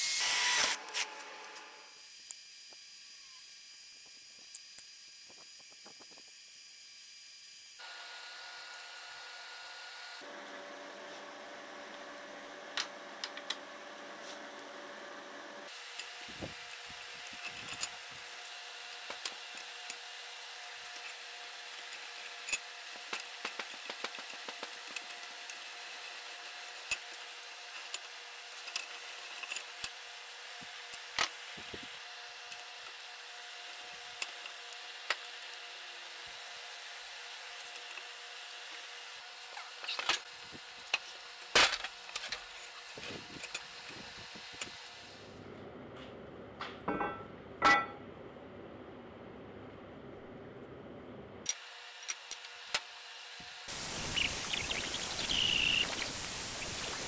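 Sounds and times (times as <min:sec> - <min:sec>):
steady hiss: 0:53.7 - 0:57.0.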